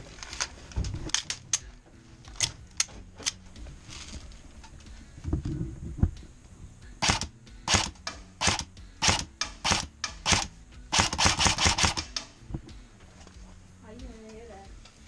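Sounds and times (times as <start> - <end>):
airsoft rifle shots: 7.0 - 12.4.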